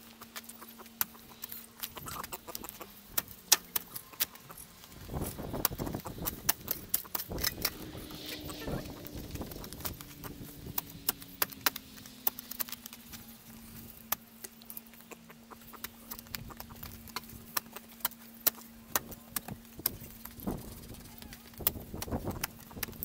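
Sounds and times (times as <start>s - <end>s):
steady low hum: 0.0s - 23.0s
shovel digging in soil: 1.0s - 9.2s.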